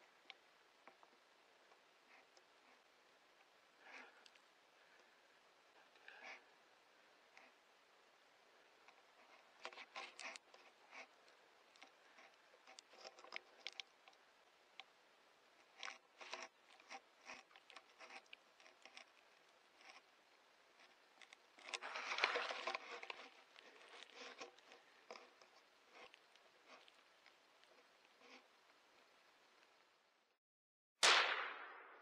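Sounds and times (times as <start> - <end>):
soft rustles and crackles: 0.0 - 30.0
long scraping rustle: 8.5 - 14.3, 15.6 - 29.1.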